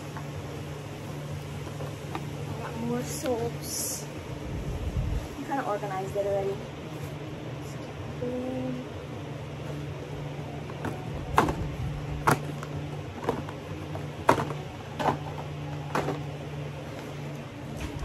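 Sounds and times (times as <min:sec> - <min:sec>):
steady low hum: 0:00.0 - 0:18.0
plastic bottles knocking: 0:14.2 - 0:16.2.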